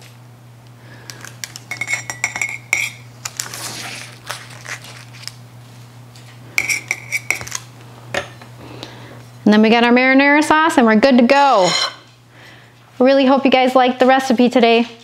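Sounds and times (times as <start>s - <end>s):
utensils clinking on plate: 1.5s - 3.5s, 6.6s - 7.6s, 11.5s - 12.1s.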